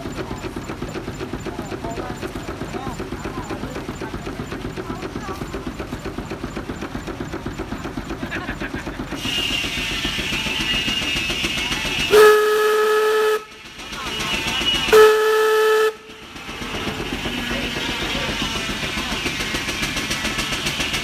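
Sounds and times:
steam engine beats: 0:00.0 - 0:21.0
steam hiss: 0:09.0 - 0:12.4, 0:16.2 - 0:21.0
steam whistle blasts: 0:09.2 - 0:16.1.

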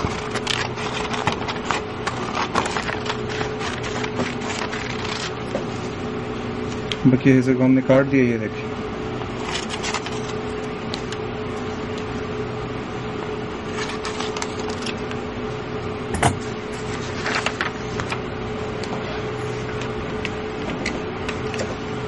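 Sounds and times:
paper rustling: 0:00.0 - 0:06.0, 0:09.4 - 0:11.2, 0:13.7 - 0:15.2, 0:16.7 - 0:18.2
steady mechanical hum: 0:00.0 - 0:22.0.

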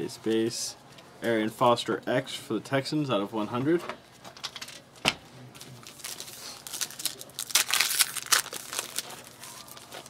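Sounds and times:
foil wrapper crinkling and tearing: 0:05.6 - 0:10.0.

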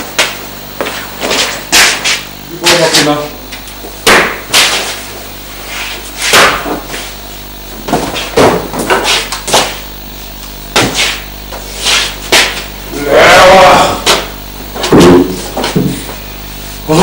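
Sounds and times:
heavy footsteps on tiled floor: 0:00.0 - 0:02.3, 0:14.0 - 0:16.2.

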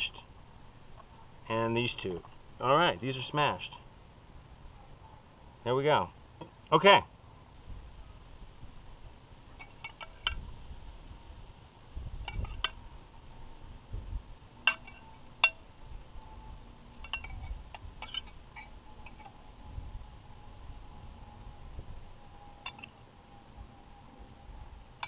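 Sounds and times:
metal spoon clinking on dishes: 0:14.7 - 0:15.6, 0:17.0 - 0:19.3, 0:22.6 - 0:22.9.

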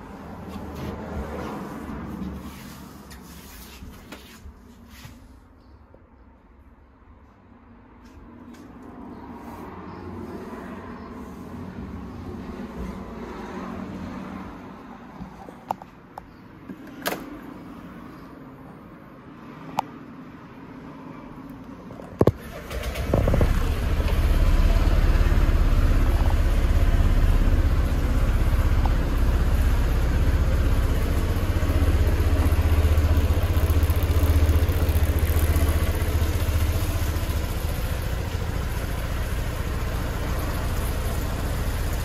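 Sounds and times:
scooter engine starting and idling: 0:22.1 - 0:42.0.

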